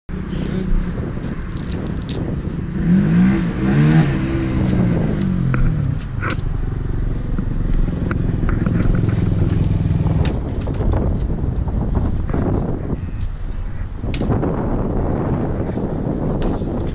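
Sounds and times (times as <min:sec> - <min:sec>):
dirt bike engine idling and revving: 0:00.1 - 0:16.9
gloves clicking and scraping: 0:00.4 - 0:02.6.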